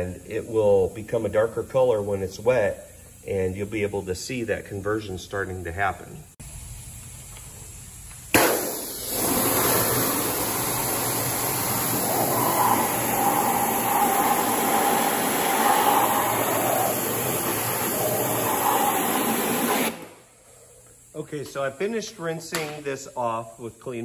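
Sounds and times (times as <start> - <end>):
pressure washer spraying water: 8.3 - 20.2.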